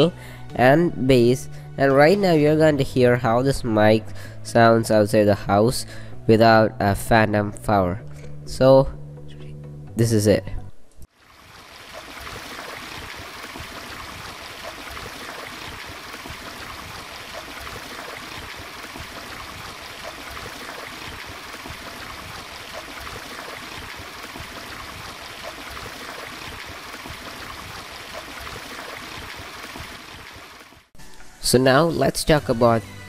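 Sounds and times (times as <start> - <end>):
stream splashing over stones: 11.1 - 30.9.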